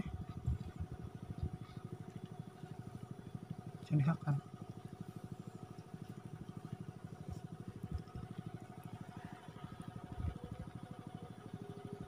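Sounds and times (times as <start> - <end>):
small engine puttering: 0.0 - 12.0.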